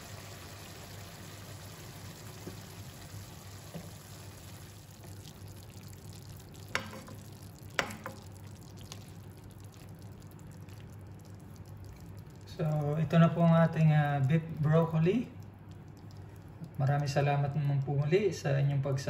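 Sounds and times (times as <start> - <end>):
food sizzling in a wok: 0.0 - 4.7
spatula knocking against pan: 6.7 - 7.2, 7.8 - 8.3.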